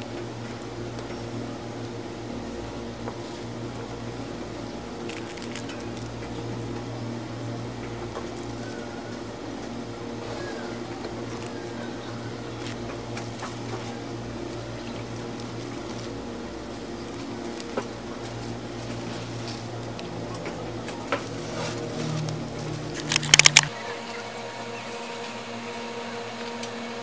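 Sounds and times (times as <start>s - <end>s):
low mechanical hum: 0.0s - 27.0s
faint clicks and handling noises: 4.8s - 7.1s, 12.4s - 23.7s.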